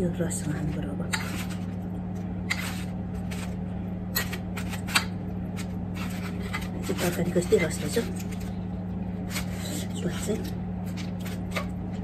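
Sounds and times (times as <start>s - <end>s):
steady low hum: 0.0s - 12.0s
metal spoon scraping foil: 1.0s - 1.8s, 2.5s - 8.5s, 9.2s - 11.8s.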